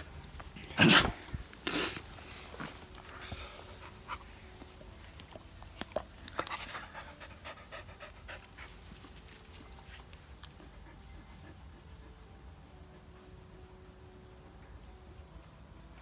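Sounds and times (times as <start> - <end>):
dog panting: 2.2 - 13.9.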